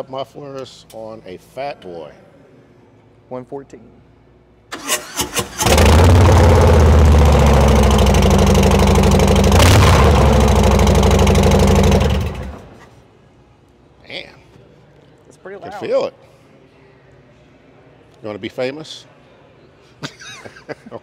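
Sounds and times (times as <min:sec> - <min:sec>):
motorcycle engine idling loudly: 0:05.7 - 0:12.6.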